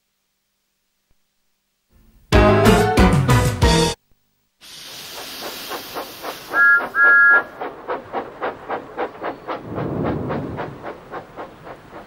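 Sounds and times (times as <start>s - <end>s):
steam engine chuffing: 4.6s - 12.0s
steam hissing: 4.6s - 12.0s.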